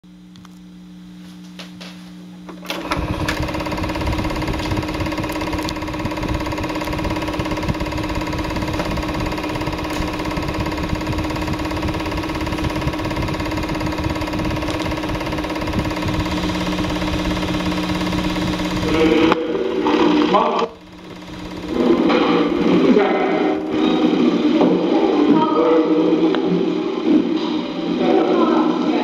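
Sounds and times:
film projector clattering: 2.5s - 24.4s.

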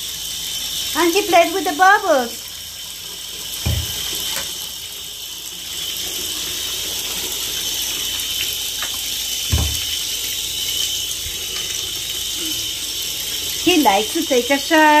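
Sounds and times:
water running into bathtub: 0.0s - 15.0s
dull knock: 3.6s - 4.0s, 9.5s - 9.9s.

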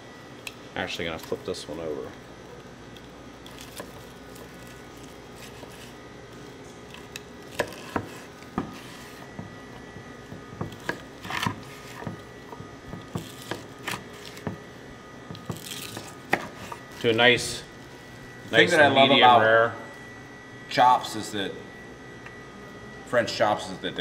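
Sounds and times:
knife cutting meat: 3.4s - 14.7s, 15.4s - 17.1s
knife knocking on wooden board: 9.3s - 13.6s.

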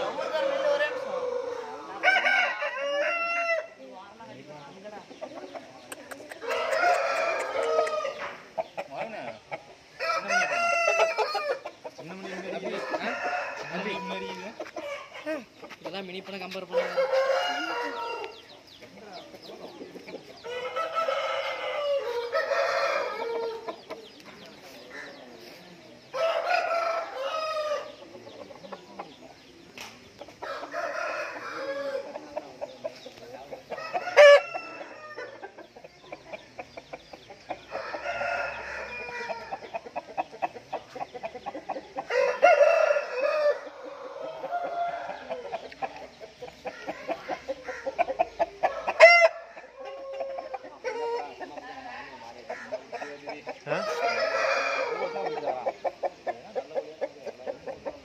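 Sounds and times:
roosters crowing: 0.0s - 4.0s, 6.4s - 15.7s, 16.6s - 18.7s, 20.3s - 29.5s, 30.2s - 35.8s, 37.2s - 58.0s.

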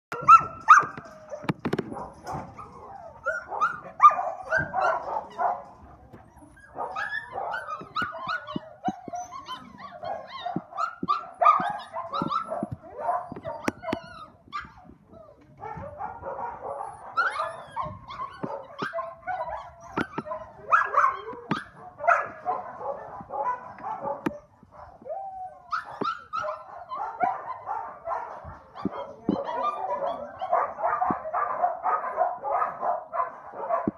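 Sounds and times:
puppies yipping and barking: 0.1s - 33.9s.

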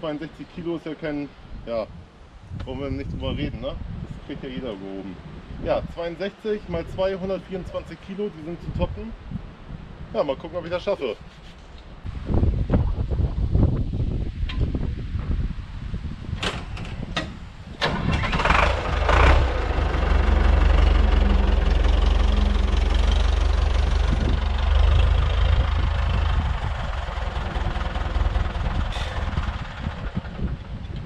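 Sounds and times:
tractor diesel engine starting: 16.4s - 31.0s.

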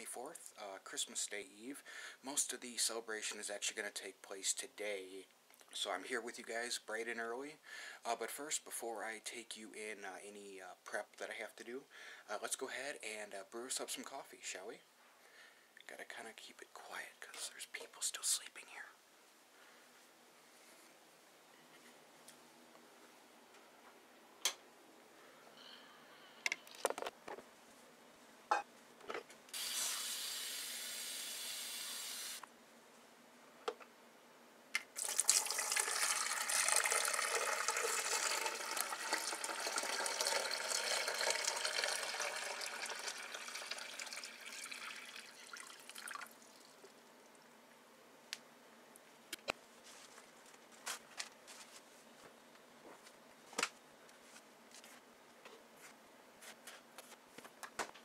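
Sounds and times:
water pouring from carafe: 35.0s - 46.9s
running water: 35.0s - 47.0s.

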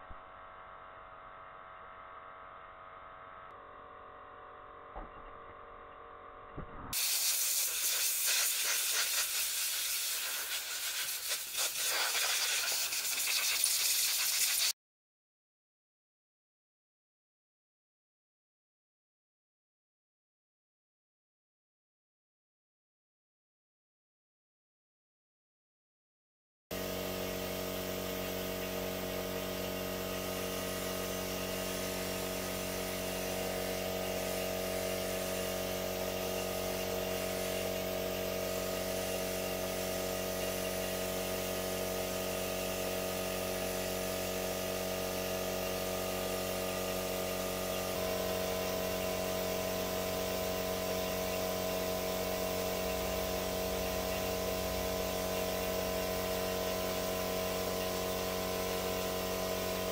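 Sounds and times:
small motor droning: 26.8s - 59.9s.

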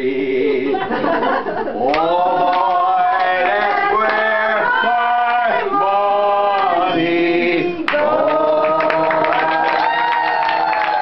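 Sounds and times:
man singing unaccompanied: 1.9s - 9.4s.

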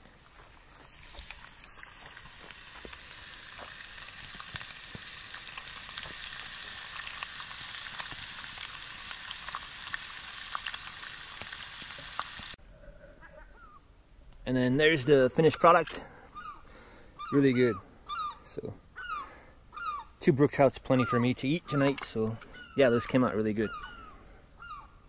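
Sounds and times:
fish sizzling in a pan: 0.3s - 12.6s.

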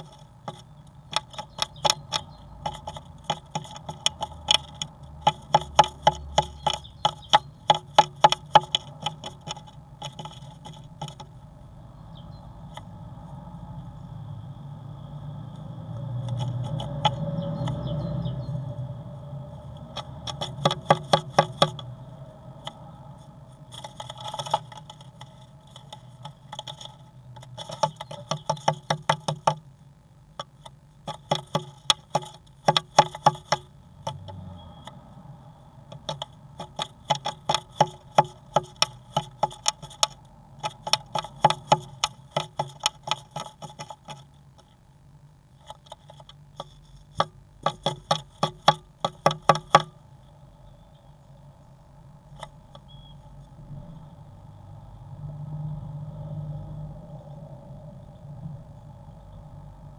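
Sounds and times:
bird tapping and scratching on wood: 0.0s - 11.4s, 12.2s - 12.9s, 15.6s - 18.4s, 19.6s - 29.7s, 30.3s - 35.1s, 35.8s - 44.8s, 45.6s - 50.0s, 52.3s - 53.0s.

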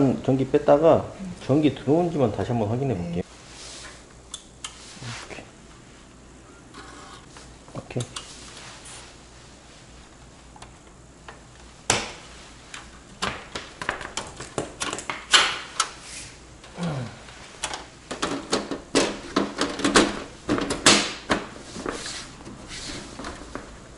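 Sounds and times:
computer case clicks and knocks: 17.7s - 21.6s.

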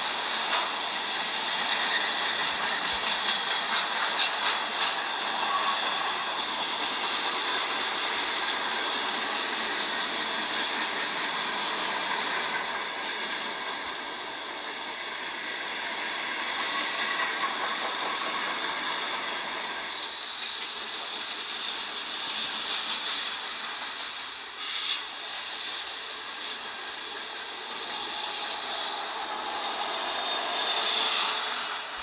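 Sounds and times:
wheel squeal: 0.5s - 14.0s, 16.6s - 32.0s.

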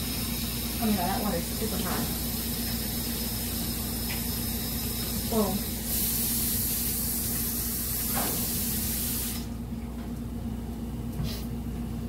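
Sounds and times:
tap running water into sink: 6.5s - 8.6s.

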